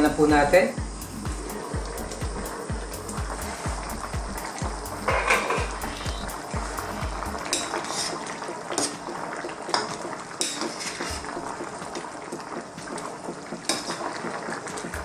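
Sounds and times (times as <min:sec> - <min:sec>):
stew bubbling: 0:00.8 - 0:15.0
metal spatula scraping a wok: 0:05.1 - 0:08.2, 0:10.4 - 0:11.3.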